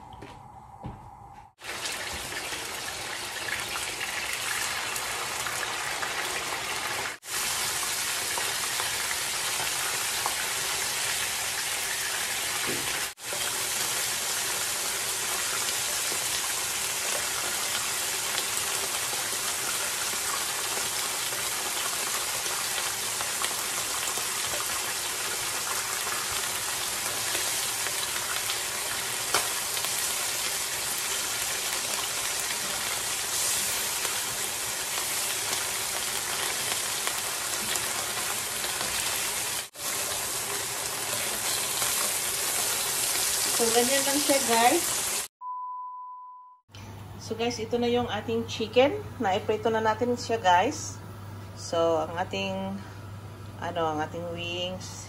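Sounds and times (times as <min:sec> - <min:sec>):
chicken frying in oil: 0:01.6 - 0:45.3.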